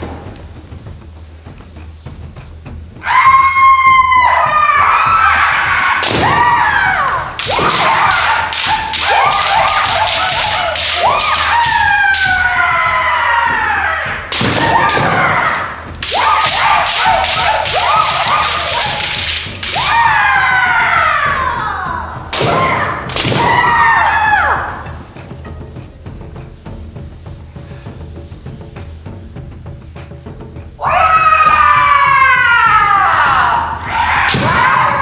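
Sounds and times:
high-pitched shouts: 3.0s - 25.0s, 30.8s - 35.0s
bamboo sword strikes: 7.4s - 11.9s, 14.4s - 15.3s, 16.0s - 19.9s.

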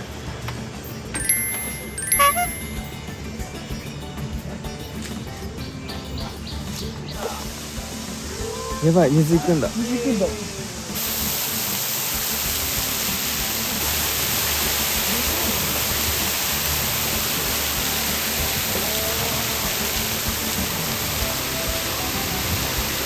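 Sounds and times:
waterfall rushing: 7.0s - 23.0s.

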